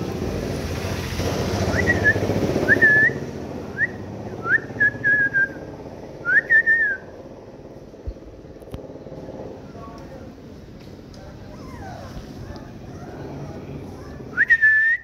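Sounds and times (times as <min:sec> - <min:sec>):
puppies whining: 0:11.2 - 0:14.7.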